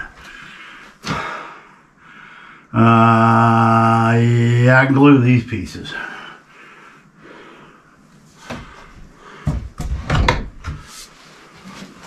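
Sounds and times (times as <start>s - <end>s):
plastic pipe knocks and clatters: 9.4s - 10.9s.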